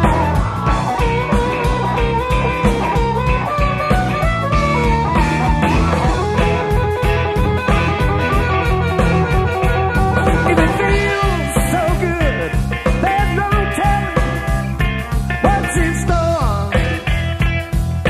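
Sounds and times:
lead instrument with bending notes: 0.0s - 12.7s
bass guitar: 0.0s - 18.0s
drums beating: 0.0s - 18.0s.

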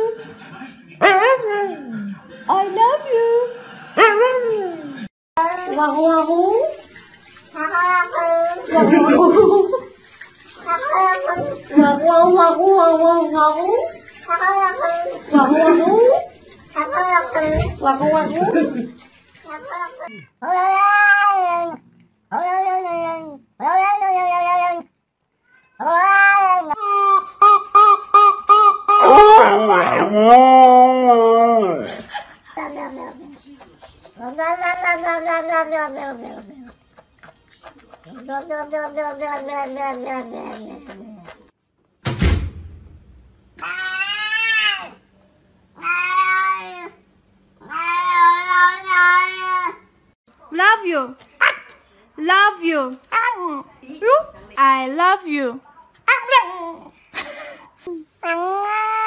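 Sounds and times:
cat meowing: 19.6s - 26.8s, 34.2s - 36.5s
thump: 42.0s - 43.4s.

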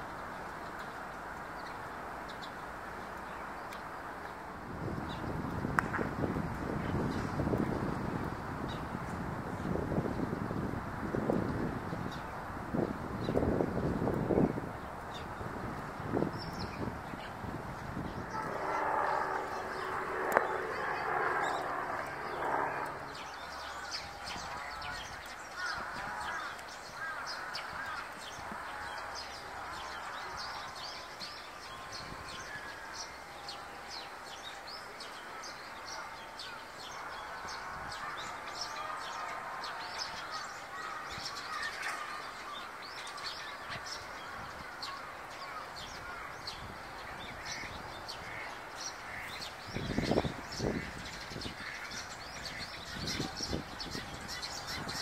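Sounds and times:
sparrows chirping: 15.1s - 55.0s
loud rumble: 17.9s - 23.3s.

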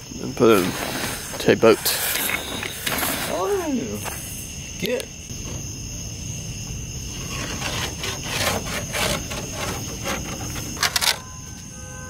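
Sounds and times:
pencil scratching on plywood: 7.1s - 11.0s.

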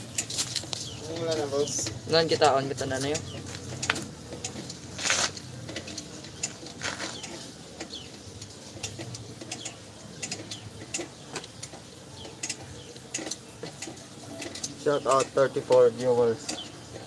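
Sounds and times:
metallic clicks of brake drum: 0.1s - 17.0s.

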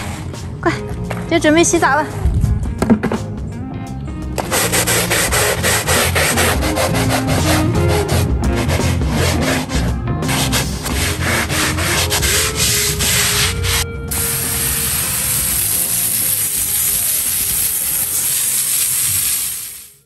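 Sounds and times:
brush scrubbing asphalt: 4.4s - 19.8s
water jet spraying: 14.1s - 20.0s.

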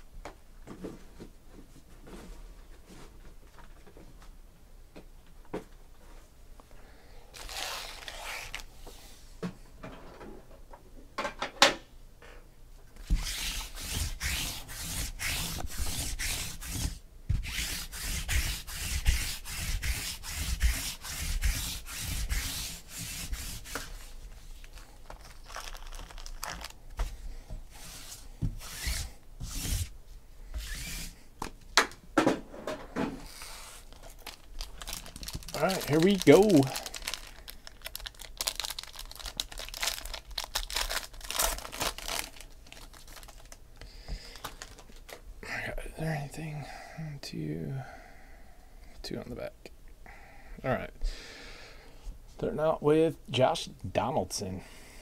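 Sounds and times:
plastic-wrapped packs rubbing: 7.3s - 8.8s, 13.0s - 27.1s, 27.7s - 29.9s, 30.6s - 31.2s, 33.2s - 43.6s.

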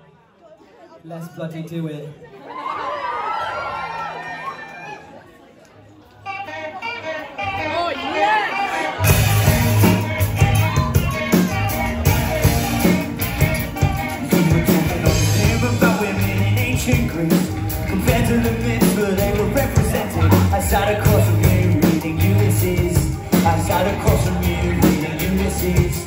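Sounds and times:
electric guitars: 6.2s - 26.0s
indie rock band playing: 6.2s - 26.0s
drums beating: 9.0s - 26.0s.

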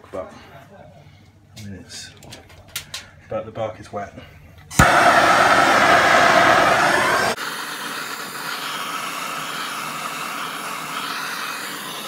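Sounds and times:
gas torch flame hissing: 4.7s - 12.0s.

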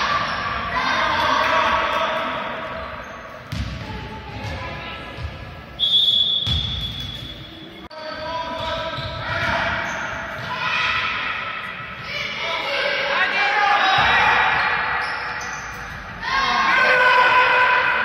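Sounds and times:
basketball bouncing on wooden court: 3.5s - 5.5s, 6.4s - 7.0s
referee whistle blast: 5.8s - 7.4s.

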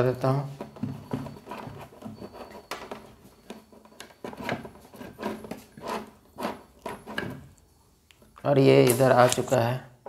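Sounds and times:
cord scraping plastic cabinet: 0.6s - 7.5s.

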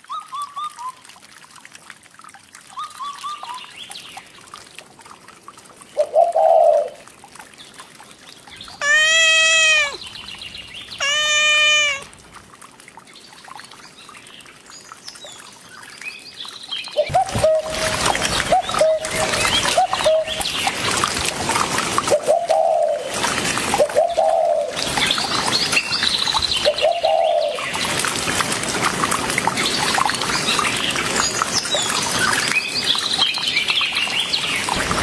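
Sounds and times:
cat meowing: 8.8s - 10.0s, 11.0s - 12.1s.

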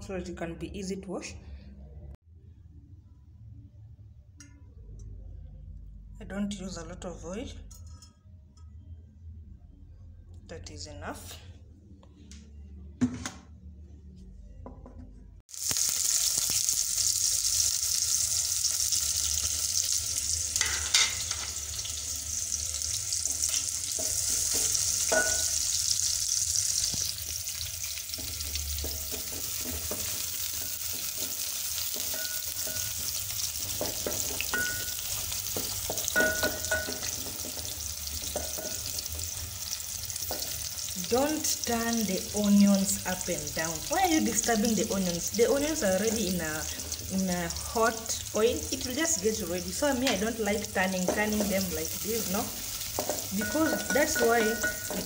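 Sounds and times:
onions sizzling in hot oil: 15.5s - 55.0s
wooden spoon knocking pot: 28.2s - 38.8s, 52.9s - 55.0s.

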